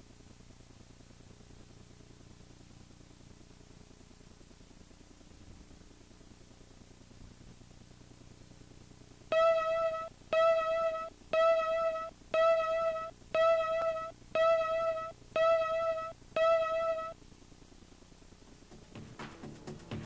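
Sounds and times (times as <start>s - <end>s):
countdown beep tones: 9.3s - 17.2s.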